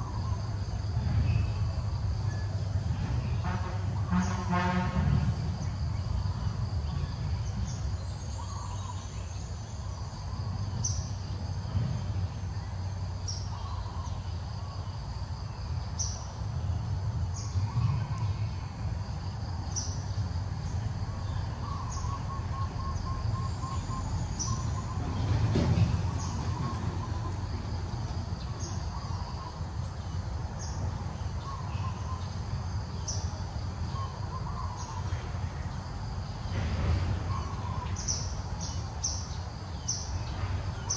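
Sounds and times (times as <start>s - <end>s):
bird chirping: 5.6s - 11.4s, 12.5s - 15.0s, 19.6s - 35.8s, 37.3s - 40.9s.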